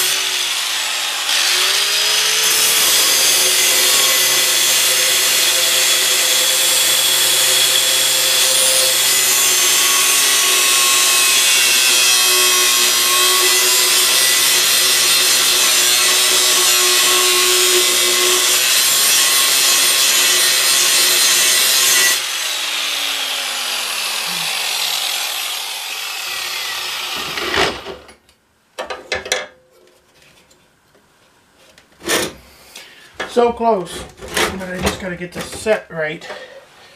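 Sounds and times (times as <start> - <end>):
angle grinder cutting steel: 0.0 - 27.9.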